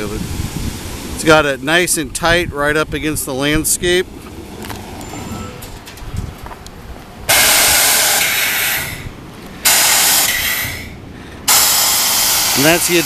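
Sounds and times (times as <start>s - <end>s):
truck rumbling low: 0.0s - 13.0s
air hiss blasts: 7.3s - 13.0s.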